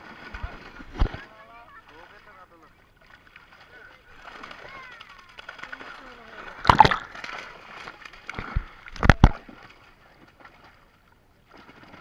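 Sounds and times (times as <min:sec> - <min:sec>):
fish thrashing in water: 0:03.0 - 0:10.6
loud splashing thuds: 0:06.6 - 0:07.5.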